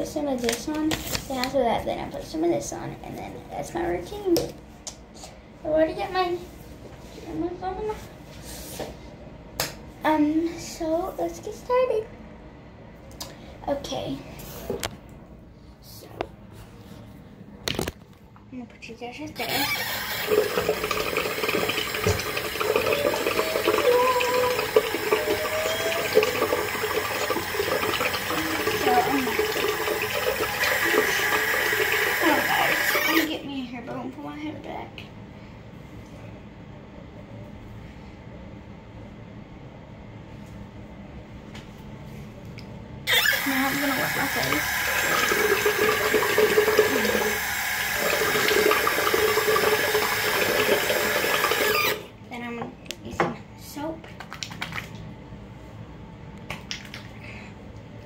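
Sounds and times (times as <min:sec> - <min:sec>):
tap water pouring into sink: 0:19.5 - 0:33.3, 0:43.1 - 0:52.0.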